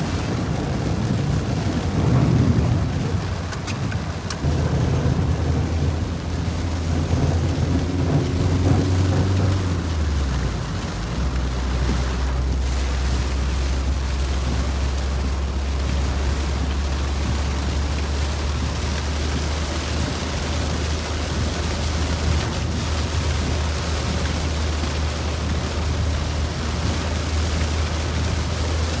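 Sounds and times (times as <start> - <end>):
heavy rain on a car: 0.0 - 29.0
low car rumble: 0.0 - 29.0
tyres hissing on wet road: 0.0 - 29.0.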